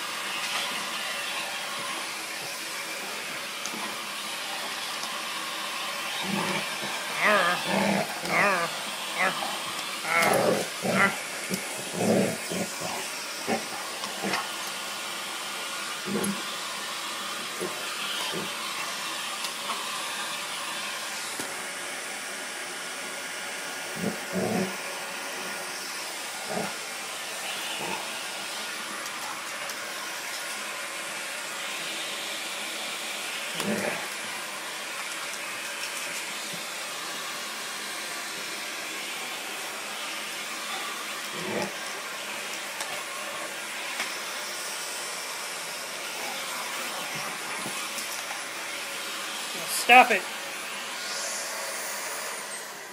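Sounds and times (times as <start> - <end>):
vacuum cleaner running: 0.0 - 52.9
dog sounds: 6.1 - 14.6.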